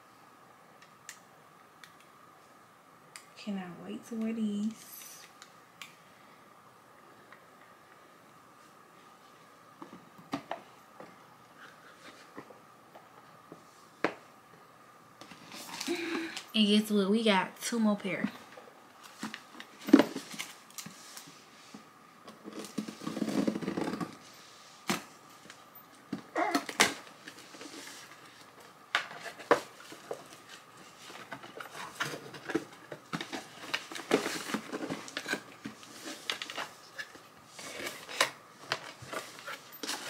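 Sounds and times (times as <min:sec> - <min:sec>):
cardboard box and paper rustling: 0:29.2 - 0:40.0.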